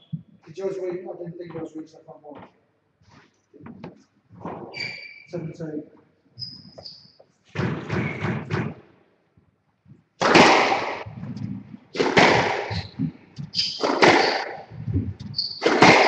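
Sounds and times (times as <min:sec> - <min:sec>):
shoe squeaks: 0:04.7 - 0:05.4, 0:06.4 - 0:07.4, 0:12.7 - 0:16.0
squash ball cracking off rackets: 0:10.2 - 0:11.3, 0:11.9 - 0:14.8, 0:15.5 - 0:16.0.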